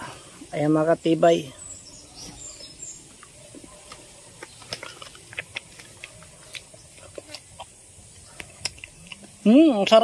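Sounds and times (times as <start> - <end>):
chewing hard nut crunches: 3.9 - 10.0.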